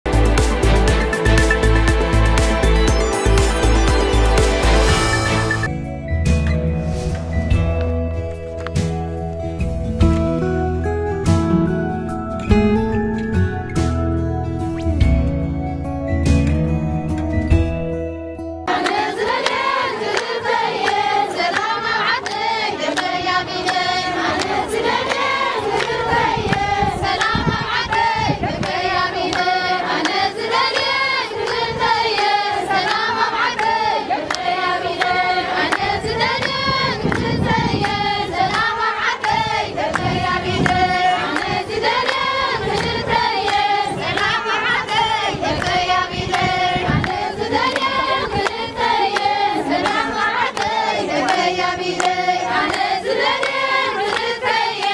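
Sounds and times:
hand clapping: 0:18.7 - 0:54.9
women singing together: 0:18.7 - 0:54.9.

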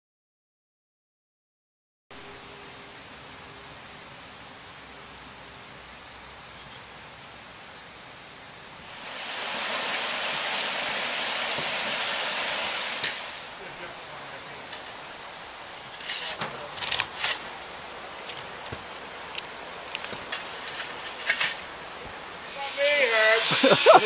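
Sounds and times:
high insect trill: 0:02.2 - 0:24.0
low hiss: 0:02.2 - 0:24.0
loud steady rushing noise: 0:08.9 - 0:15.8, 0:21.2 - 0:24.0.

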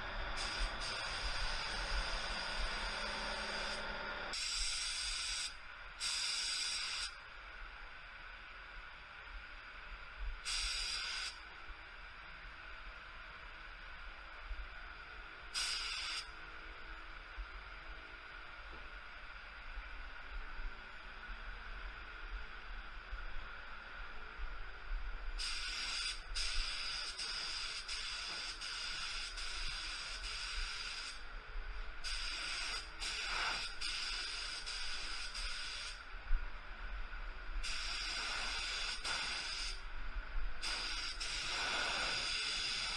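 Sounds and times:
faint steady hiss: 0:00.0 - 0:42.9
spray gun hissing bursts: 0:00.4 - 0:07.2, 0:10.4 - 0:11.4, 0:15.5 - 0:16.3, 0:25.4 - 0:31.2, 0:32.0 - 0:36.0, 0:37.6 - 0:39.8, 0:40.6 - 0:42.9
compressed air rushing: 0:40.6 - 0:42.9.

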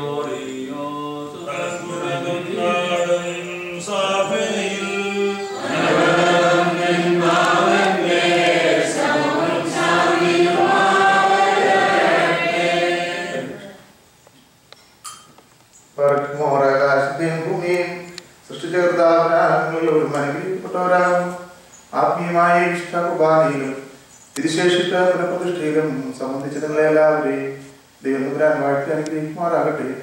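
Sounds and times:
men's voices chanting: 0:00.0 - 0:13.7.

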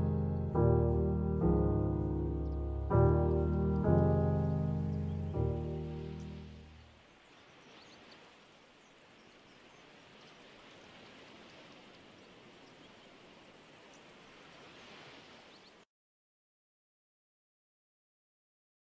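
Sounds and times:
music notes: 0:00.0 - 0:06.8
rain-like hiss: 0:00.0 - 0:15.9.

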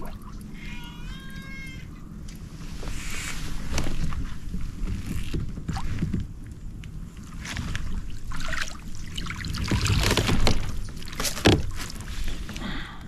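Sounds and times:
low irregular rumble: 0:00.0 - 0:13.0
water sloshing against kayak: 0:02.3 - 0:12.6.

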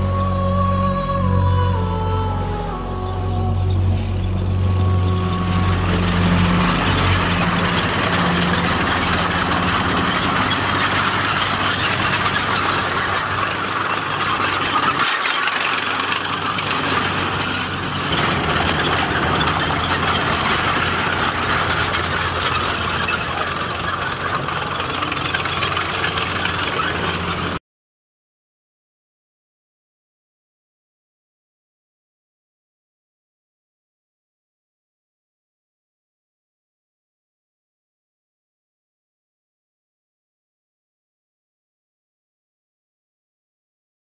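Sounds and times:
tank engine running: 0:00.9 - 0:27.6
steel tracks clanking: 0:04.2 - 0:27.6.

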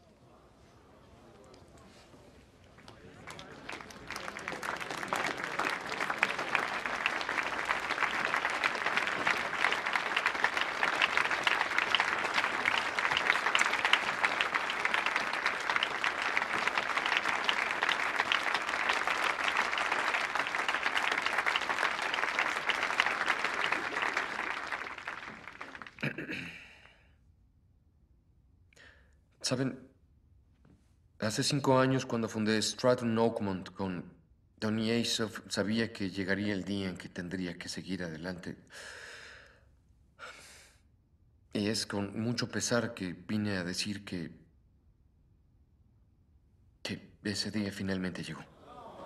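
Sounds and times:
crowd applauding: 0:02.7 - 0:26.2.

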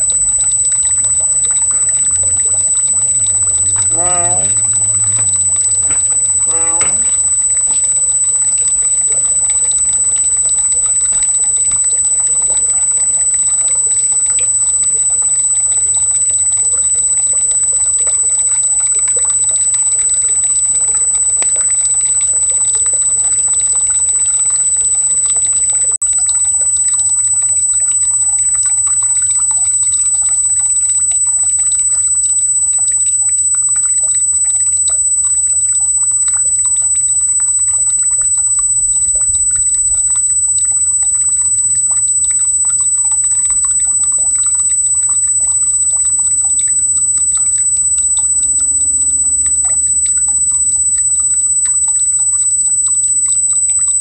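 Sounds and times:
high-pitched tone: 0:00.0 - 0:09.4
stream water trickling: 0:00.0 - 0:54.0.

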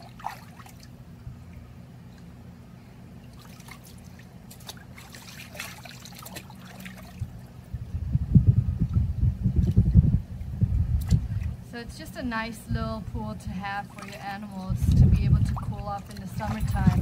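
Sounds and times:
water splashing and trickling: 0:00.0 - 0:02.5, 0:03.1 - 0:07.7, 0:09.6 - 0:17.0
low thumps and rumble: 0:07.2 - 0:12.0, 0:14.6 - 0:17.0.

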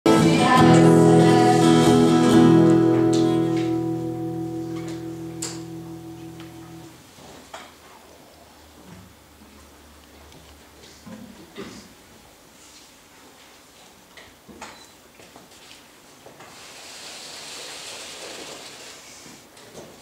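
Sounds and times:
strummed guitar chord: 0:00.1 - 0:07.0.

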